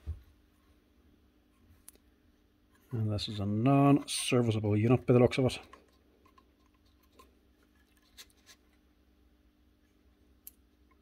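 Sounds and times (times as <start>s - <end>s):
plastic housing clicks and rubs: 5.6s - 8.8s.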